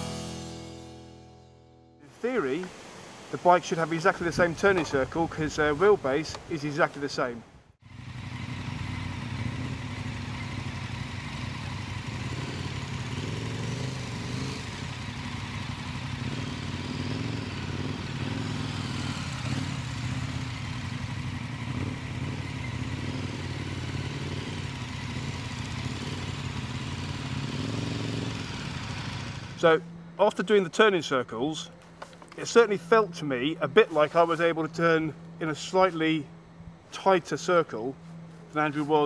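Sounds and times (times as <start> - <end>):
motorcycle engines at low revs: 3.7 - 39.0.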